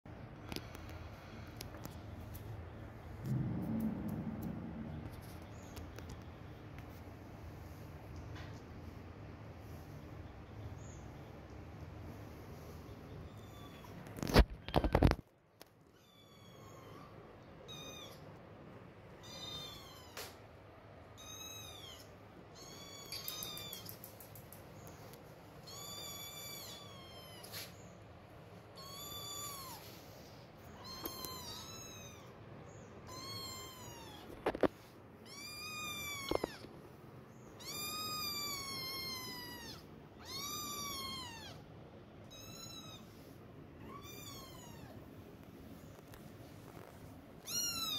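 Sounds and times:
sharp knocks: 3.2s - 5.2s.

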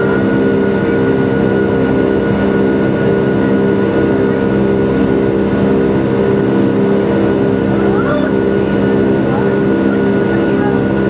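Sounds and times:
jet engines droning in cabin: 0.0s - 11.0s.

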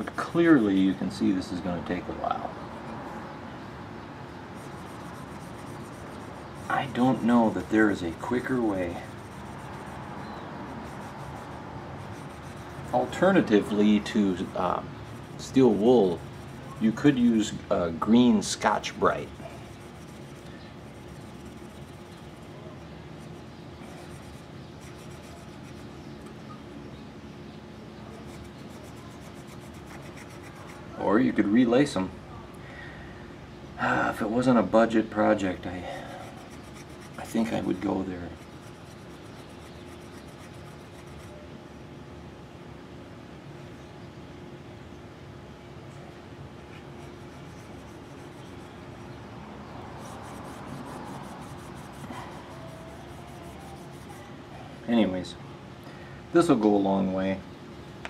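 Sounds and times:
steady low hum: 0.0s - 58.0s
abrasive pad scrubbing metal spokes: 4.6s - 22.6s, 23.2s - 26.3s, 28.2s - 30.9s, 36.1s - 41.3s, 46.8s - 49.0s, 49.9s - 54.3s.

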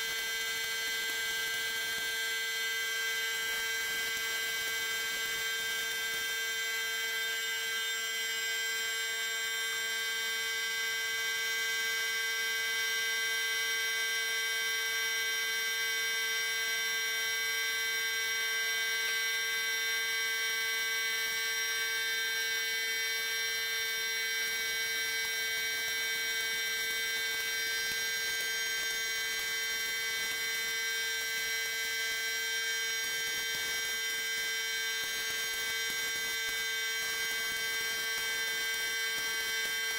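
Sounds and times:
electric motor whine: 0.0s - 10.8s.

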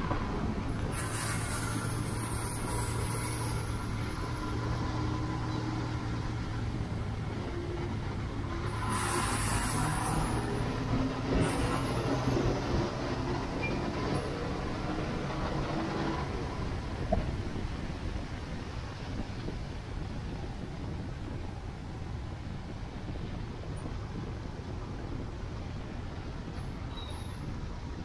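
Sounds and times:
vehicle engine humming: 0.0s - 28.0s
bursts of hiss: 8.7s - 10.7s.

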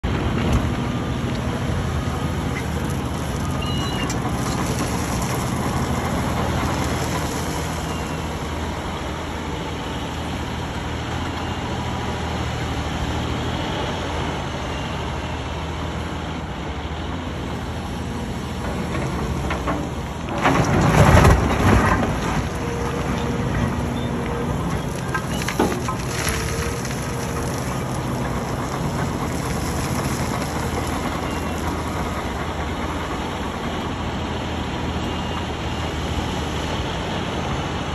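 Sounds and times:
excavator engine running: 0.0s - 37.9s
bucket working in gravel: 0.2s - 9.2s, 18.7s - 33.2s.

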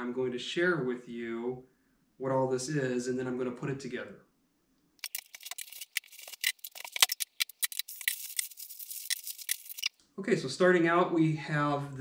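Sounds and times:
plastic packaging crinkling: 5.0s - 9.9s.

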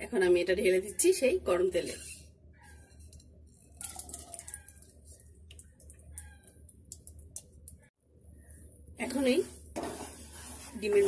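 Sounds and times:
egg being poured into pan: 3.7s - 6.0s.

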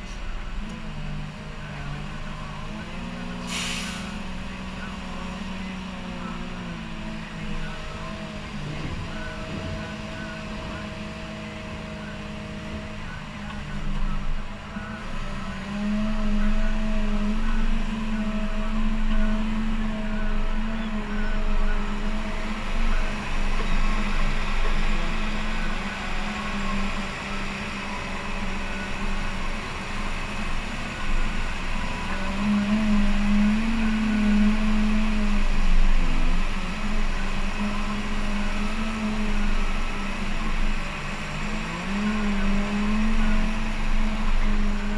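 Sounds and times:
diesel engine running under load: 0.0s - 44.9s.

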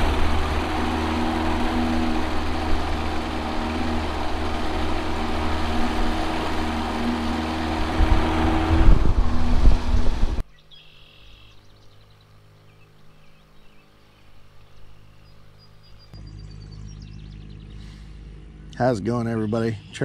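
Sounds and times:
outboard motor running: 0.0s - 10.4s, 11.0s - 20.0s
water rushing: 0.0s - 10.4s.

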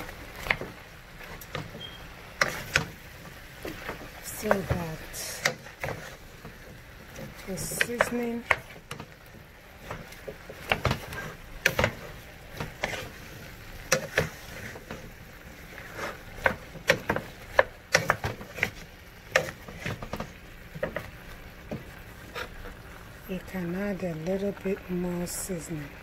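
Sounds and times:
wooden spoon scraping metal pot: 0.4s - 22.8s.

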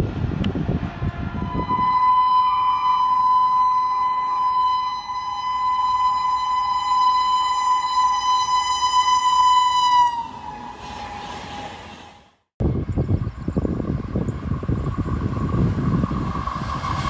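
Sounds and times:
train rumbling on tracks: 0.0s - 17.0s
train horn: 0.9s - 12.2s.

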